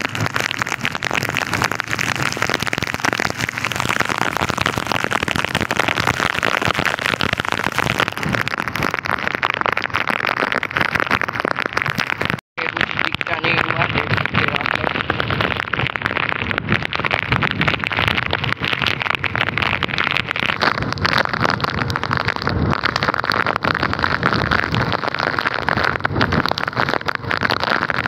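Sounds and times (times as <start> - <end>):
rain hitting microphone: 0.0 - 28.0
wind rushing over microphone: 12.3 - 28.0.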